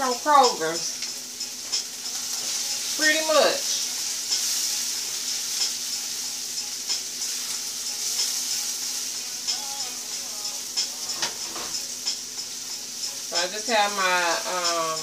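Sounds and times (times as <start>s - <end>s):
vegetables sizzling in butter: 0.0s - 15.0s.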